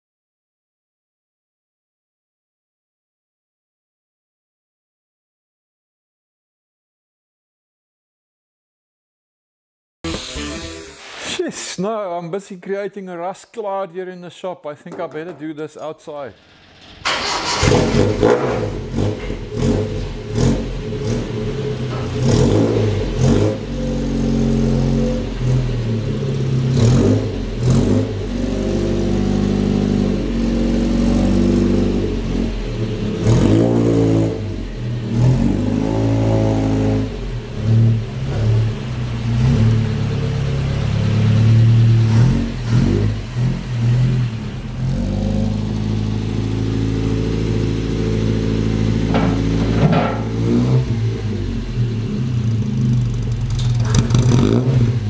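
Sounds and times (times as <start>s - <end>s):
pickup engine revving: 16.4s - 55.0s.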